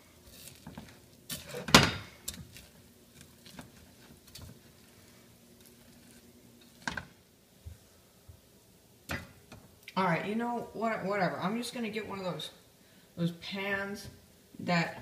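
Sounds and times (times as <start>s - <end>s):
spatula stirring sticky cereal: 0.0s - 6.8s.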